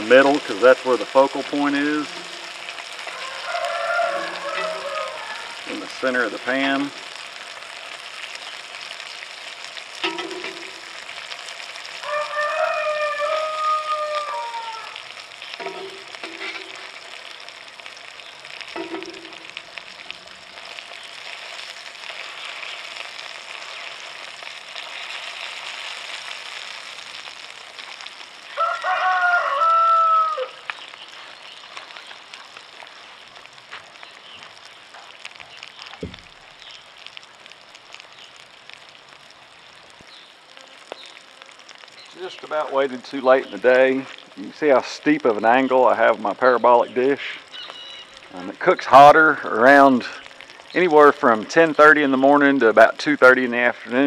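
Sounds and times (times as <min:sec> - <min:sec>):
sausages sizzling in a frying pan: 0:00.0 - 0:54.0
rooster crowing: 0:03.0 - 0:05.7, 0:12.0 - 0:15.1, 0:28.5 - 0:30.7.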